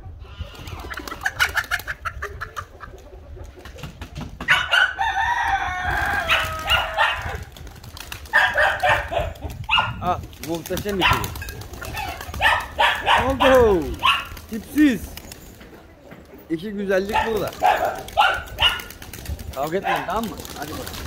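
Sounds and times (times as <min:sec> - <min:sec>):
chickens clucking: 0:00.0 - 0:07.5, 0:08.2 - 0:14.6, 0:15.2 - 0:20.9
rooster crowing: 0:04.5 - 0:07.2.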